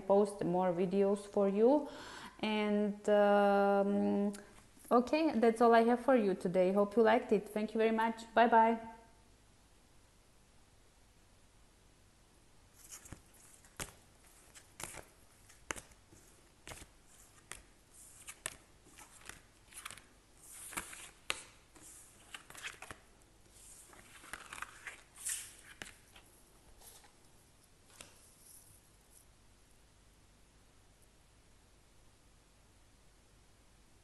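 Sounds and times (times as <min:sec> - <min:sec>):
cards tapping and sliding: 0:12.8 - 0:26.2, 0:27.9 - 0:28.2.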